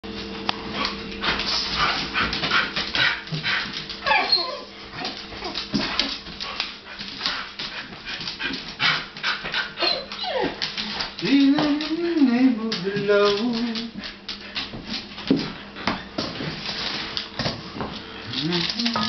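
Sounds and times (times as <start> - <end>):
dogs huffing breathily: 0.8 - 4.0, 5.3 - 10.4
dogs whining and whimpering: 4.0 - 6.2, 9.5 - 10.7.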